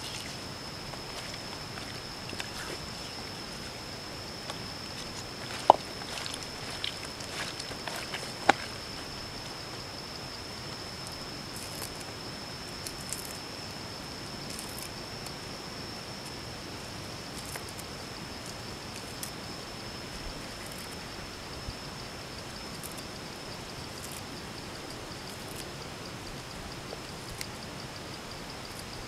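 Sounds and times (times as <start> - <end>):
faint crinkles and ticks: 0.0 - 9.9
steady hiss: 0.0 - 29.0.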